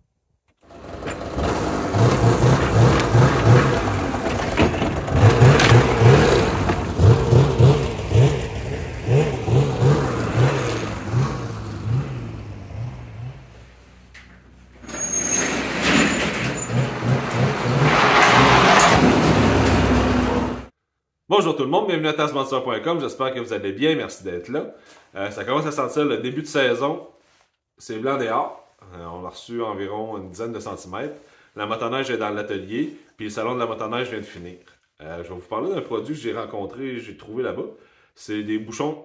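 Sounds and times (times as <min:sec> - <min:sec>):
snowmobile engine revving: 0:00.7 - 0:14.1, 0:16.5 - 0:20.7.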